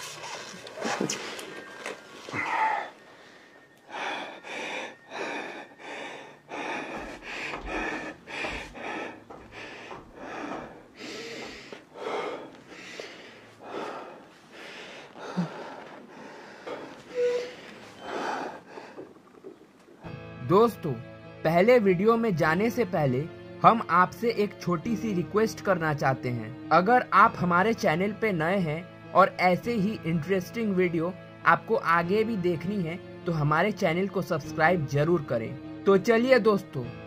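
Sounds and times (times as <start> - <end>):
fast heavy breathing: 0.0 - 19.6.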